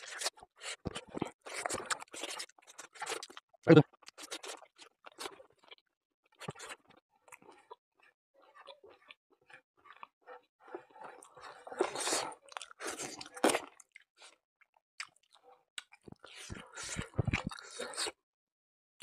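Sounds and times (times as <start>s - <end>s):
close chewing sounds: 0.0s - 18.2s.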